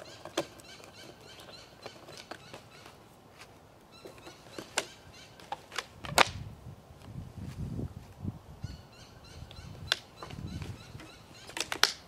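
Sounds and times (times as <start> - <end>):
rubber bands snapping: 5.6 - 6.4.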